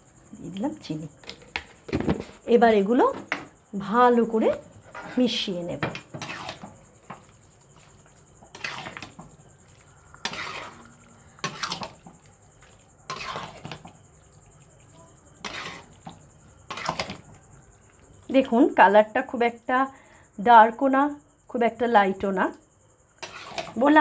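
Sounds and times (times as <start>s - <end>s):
spatula scraping through gravy: 6.0s - 18.0s, 23.2s - 23.8s.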